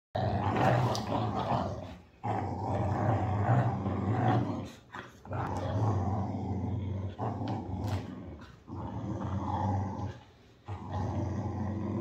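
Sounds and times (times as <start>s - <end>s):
dogs growling: 0.2s - 12.0s.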